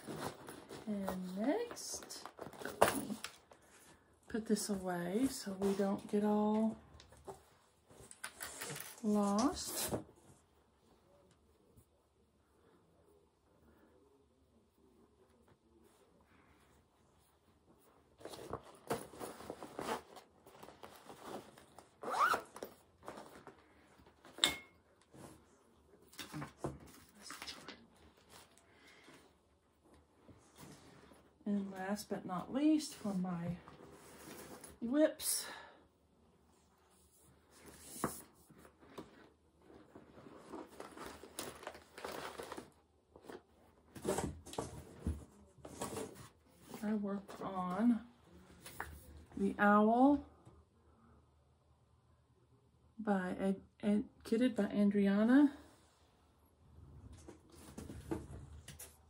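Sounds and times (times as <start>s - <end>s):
zipper being zipped: 22.0s - 22.7s
rustling and crinkling of wrappings: 38.6s - 43.4s.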